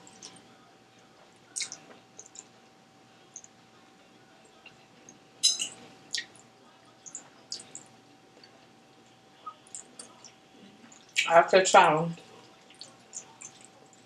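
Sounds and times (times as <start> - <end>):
faint steady hum: 0.0 - 14.0
wet mouth clicks and smacks: 1.6 - 2.5
metal fork clinking on plate: 5.4 - 5.8.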